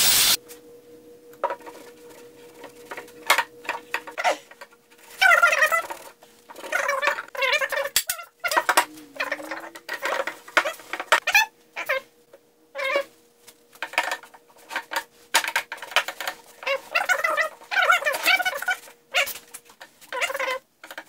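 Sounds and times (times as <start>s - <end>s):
rag rubbing with squeaks: 1.7s - 12.1s, 12.8s - 13.1s, 15.7s - 20.6s.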